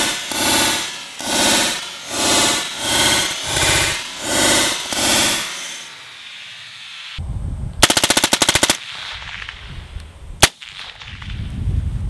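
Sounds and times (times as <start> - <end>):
suppressed rifle firing: 7.8 - 9.7.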